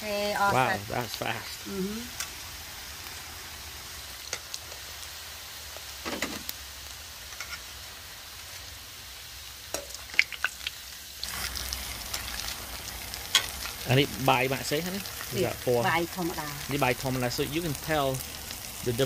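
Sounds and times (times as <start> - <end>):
food sizzling in hot oil: 0.0 - 19.0.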